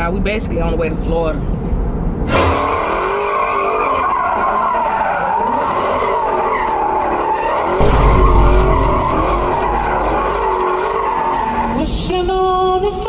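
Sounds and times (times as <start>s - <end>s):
fast ticking beat: 7.8s - 11.1s
deep bass: 7.8s - 11.2s.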